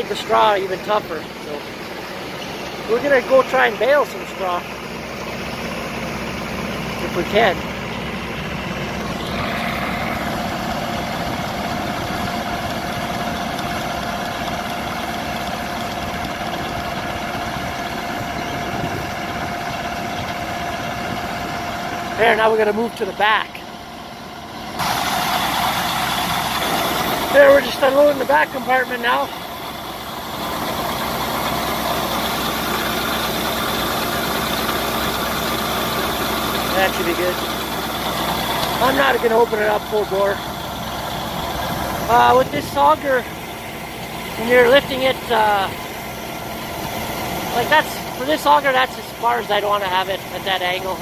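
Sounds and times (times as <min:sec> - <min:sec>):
tractor engine running: 0:00.0 - 0:51.0
grain pouring into hopper: 0:24.8 - 0:28.9.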